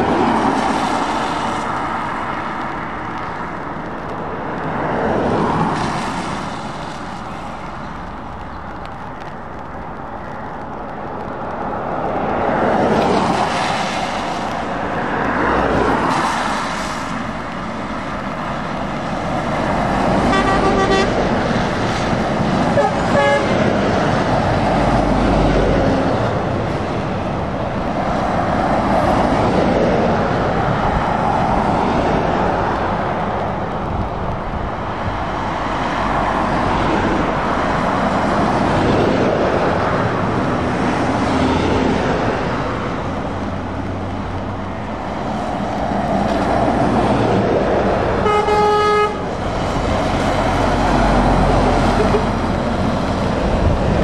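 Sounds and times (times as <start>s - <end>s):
lorries driving past on wet road: 0.0s - 54.0s
horn tooting: 20.2s - 21.3s, 22.7s - 23.6s, 48.2s - 49.3s, 51.9s - 52.4s.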